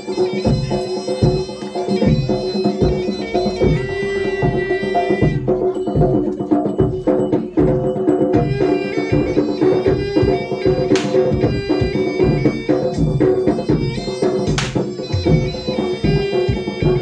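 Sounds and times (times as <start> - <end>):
hand drums beating: 0.0 - 17.0
reedy shawm melody: 0.0 - 17.0.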